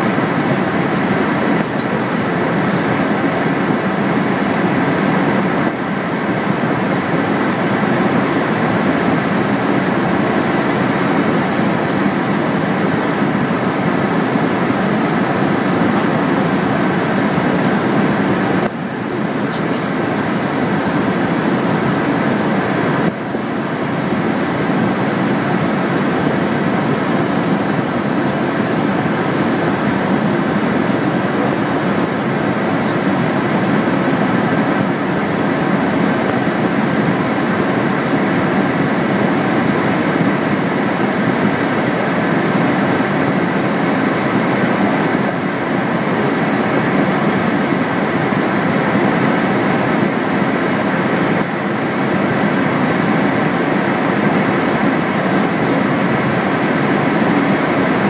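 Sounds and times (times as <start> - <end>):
aircraft engine drone: 0.0 - 58.0.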